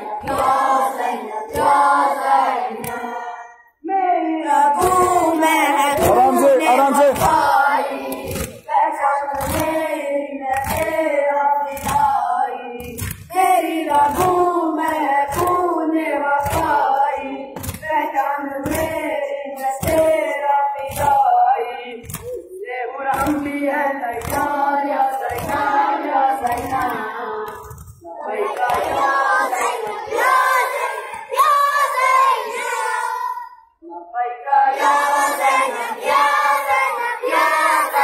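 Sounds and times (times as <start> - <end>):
boys chanting in unison: 0.0 - 3.5, 4.1 - 8.7, 28.1 - 33.6, 34.6 - 38.0.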